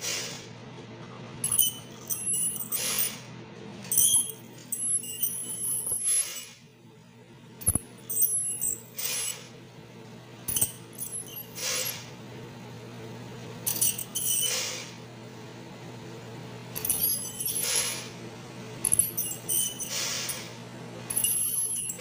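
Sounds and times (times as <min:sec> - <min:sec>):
steady low hum: 0:00.0 - 0:22.0
metal scaler scraping teeth: 0:18.9 - 0:20.5
short hissing rushes: 0:19.9 - 0:20.5.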